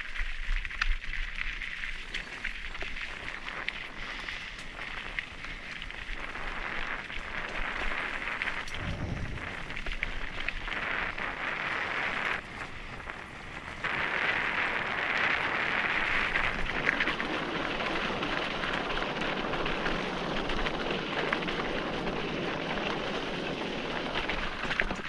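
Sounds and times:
bike tyres crunching on gravel: 0.0 - 25.0
stones and bike rattling: 0.0 - 25.0.

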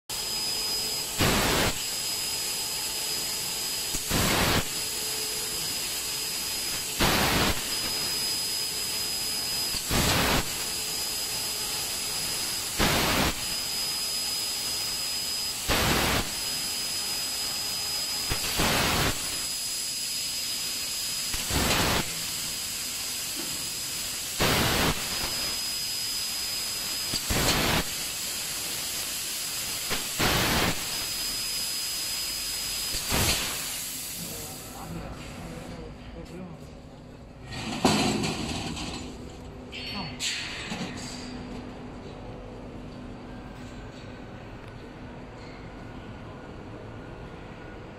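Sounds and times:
laser cutter hiss and whine: 0.1 - 35.9
bursts of hissing: 1.2 - 1.9, 3.9 - 4.8, 6.7 - 7.9, 9.8 - 10.8, 12.6 - 13.6, 15.6 - 16.4, 18.2 - 20.6, 21.2 - 23.4, 24.0 - 31.8, 32.8 - 34.5.

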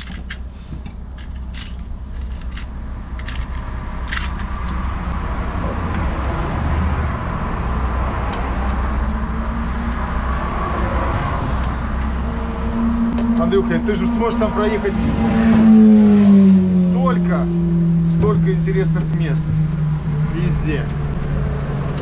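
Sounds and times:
road traffic rushing: 0.0 - 22.0
small parts clicking: 1.1 - 4.8.

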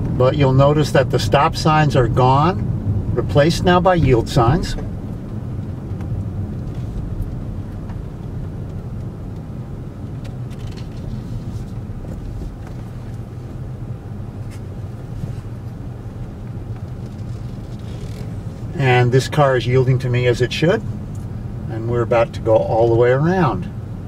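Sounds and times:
car engine and road rumble: 0.0 - 24.0.

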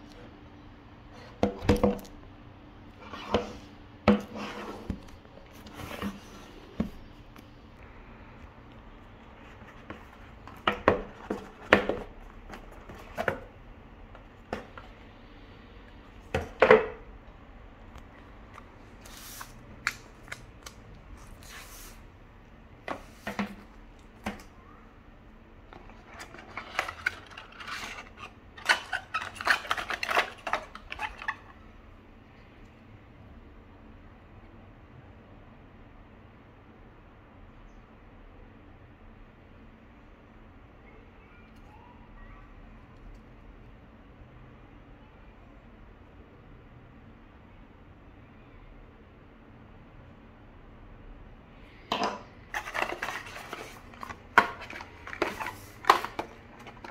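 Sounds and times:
packaging rustling: 25.7 - 31.5, 52.5 - 56.9.

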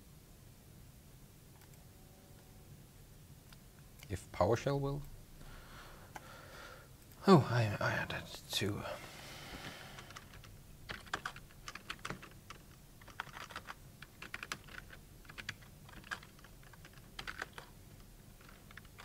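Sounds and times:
computer keyboard typing: 9.9 - 19.0.

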